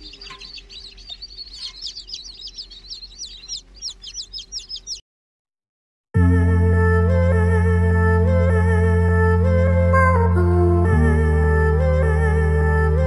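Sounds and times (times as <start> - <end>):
chicks peeping: 0.0 - 5.0.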